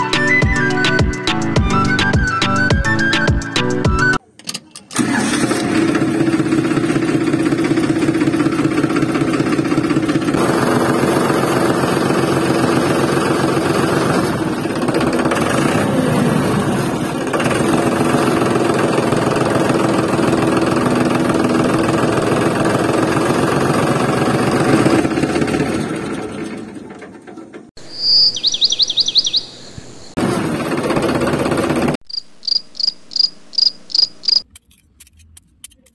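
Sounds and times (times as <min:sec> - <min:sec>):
engine running with pulsing hum: 0:05.0 - 0:27.7.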